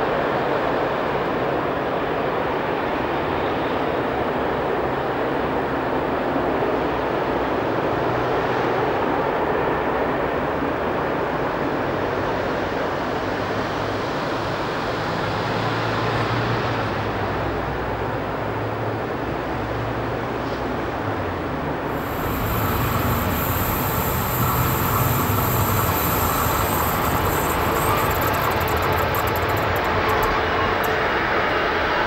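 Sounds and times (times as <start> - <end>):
train wheels rumbling on rails: 21.8 - 32.0
low electric hum: 21.9 - 31.0.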